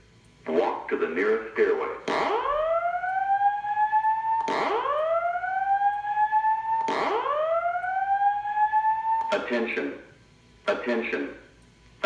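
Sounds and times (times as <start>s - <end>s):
fire alarm whoop tone: 2.1s - 9.5s.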